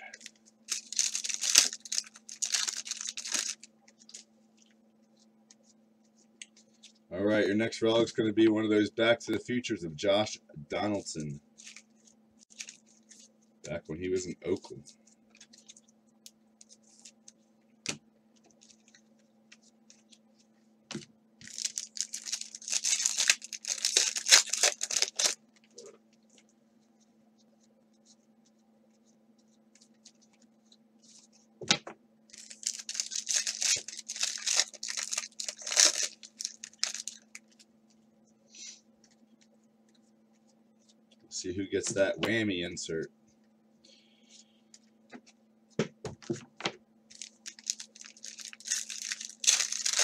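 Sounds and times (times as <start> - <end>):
faint steady hum: 0.0 - 50.0
plastic wrapper tearing: 0.1 - 4.2, 12.4 - 12.8, 21.4 - 25.4, 32.3 - 37.6, 47.1 - 50.0.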